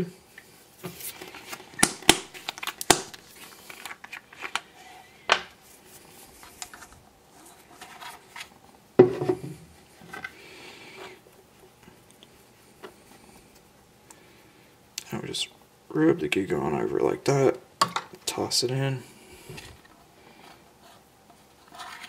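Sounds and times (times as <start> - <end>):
plastic crinkling with clicks: 1.2 - 4.7.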